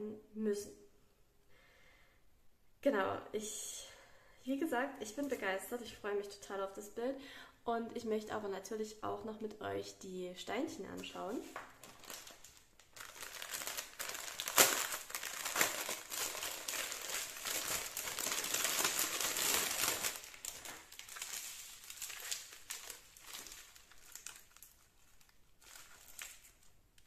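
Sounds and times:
plastic packaging crinkling: 0:11.0 - 0:27.0.

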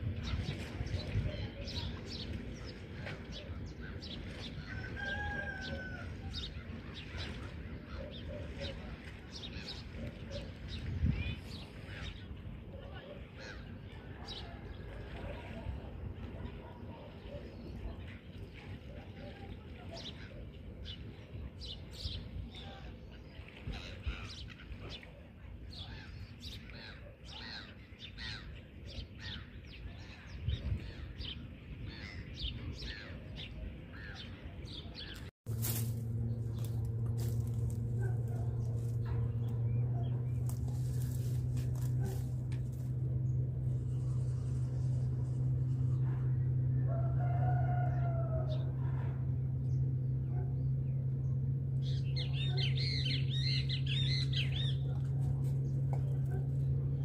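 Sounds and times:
gulls calling: 0:00.0 - 0:57.0
birds chattering: 0:16.2 - 0:57.0
low rumbling noise: 0:35.1 - 0:57.0
steady low hum: 0:35.1 - 0:57.0.

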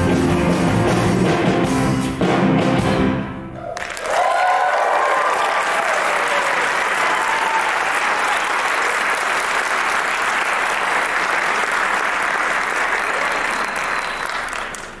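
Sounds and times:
audience applauding: 0:03.6 - 0:15.0.

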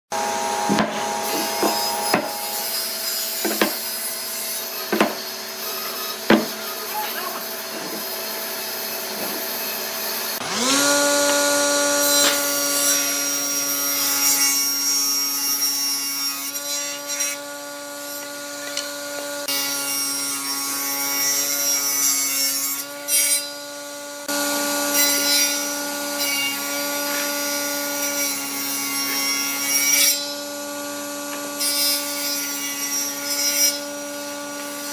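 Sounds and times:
table saw cutting hardwood: 0:00.1 - 0:34.9
sharp knocks: 0:00.7 - 0:02.4, 0:03.4 - 0:03.8, 0:04.9 - 0:05.2, 0:06.3 - 0:06.6.

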